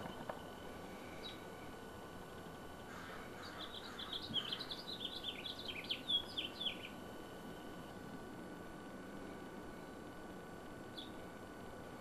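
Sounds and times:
wren singing: 0:00.0 - 0:07.9, 0:10.8 - 0:11.4.

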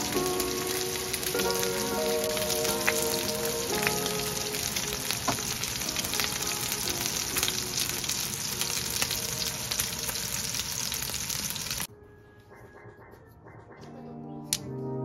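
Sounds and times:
oil popping: 0:00.0 - 0:11.8
meat sizzling in pan: 0:00.0 - 0:11.9.

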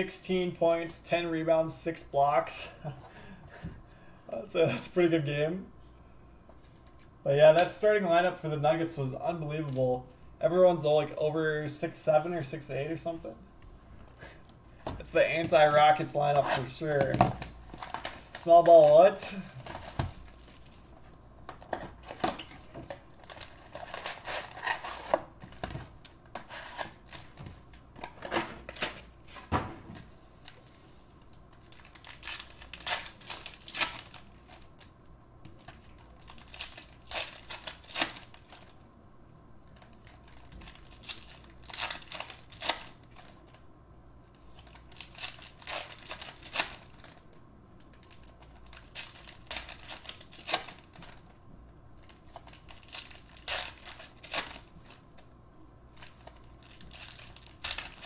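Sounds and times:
foil packs crinkling: 0:16.2 - 0:20.9, 0:22.0 - 0:25.6, 0:31.5 - 0:34.9, 0:35.6 - 0:38.8, 0:39.8 - 0:43.6, 0:44.4 - 0:47.2, 0:47.8 - 0:51.4, 0:52.0 - 0:55.2, 0:55.9 - 0:58.0.

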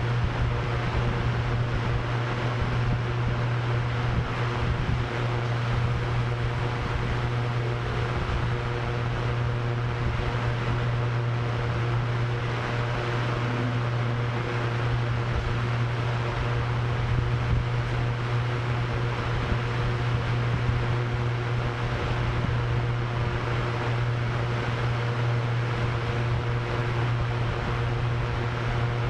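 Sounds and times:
drone propellers humming: 0:00.0 - 0:29.0
gusty wind rush: 0:00.2 - 0:18.3.

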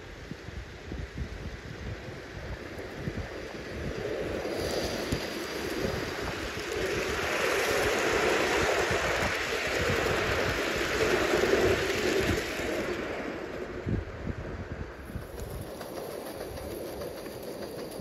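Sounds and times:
model steam train running past: 0:00.0 - 0:18.0.

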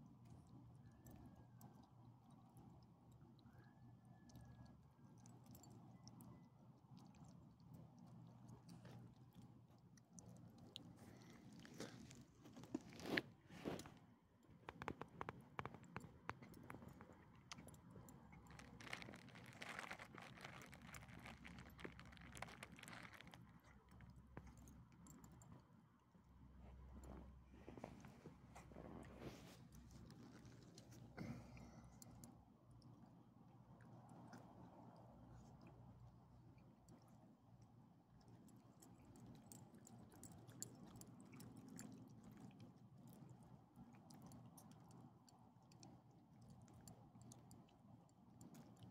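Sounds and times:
dogs chewing and licking: 0:04.2 - 0:13.9, 0:14.7 - 0:25.6, 0:33.7 - 0:48.9.

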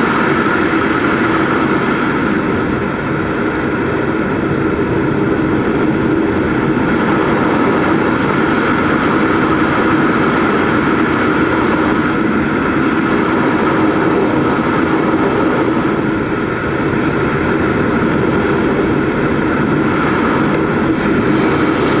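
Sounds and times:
model airplane engine droning: 0:00.0 - 0:22.0
wind rush: 0:00.0 - 0:22.0.

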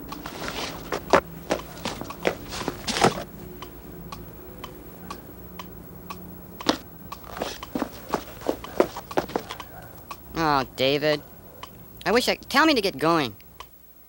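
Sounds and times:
steady mechanical ticking: 0:00.0 - 0:02.5, 0:03.5 - 0:10.4
sharp clicks: 0:03.6 - 0:07.7, 0:09.6 - 0:10.3.

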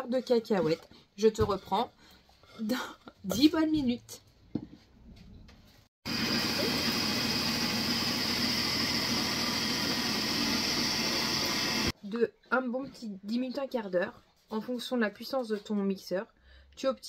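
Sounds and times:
electric chopper motor whirring: 0:06.1 - 0:11.9.

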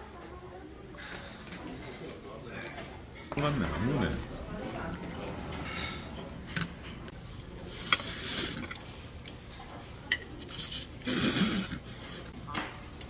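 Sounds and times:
man slurping noodles: 0:07.8 - 0:08.8, 0:10.5 - 0:12.3.

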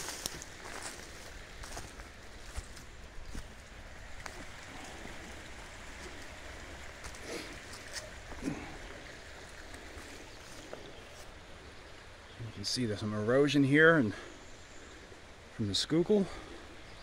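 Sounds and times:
footsteps in leaf litter: 0:00.0 - 0:05.1, 0:05.9 - 0:08.6
river flowing: 0:00.0 - 0:17.0.

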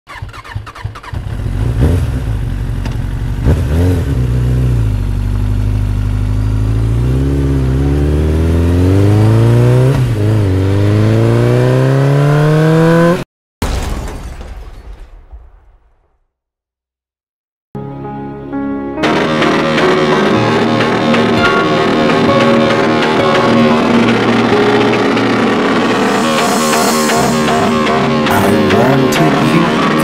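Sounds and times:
engine-like revving effect: 0:06.6 - 0:13.2, 0:19.0 - 0:30.0.

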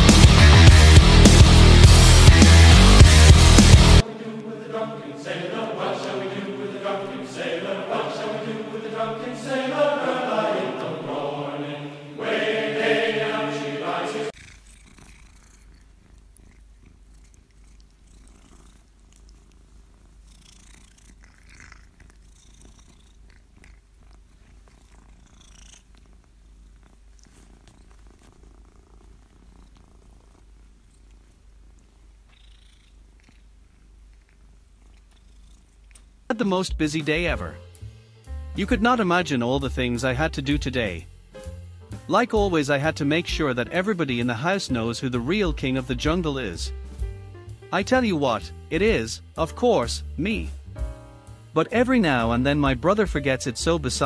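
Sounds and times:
cat purring: 0:02.2 - 0:39.9.

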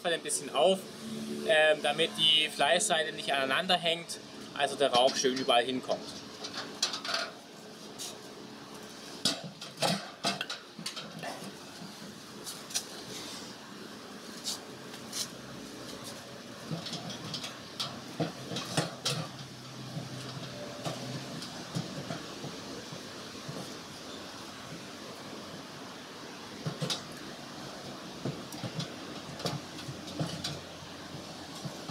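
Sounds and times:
steady background noise: 0:00.0 - 0:31.9
metal drums clanking: 0:16.6 - 0:23.8.

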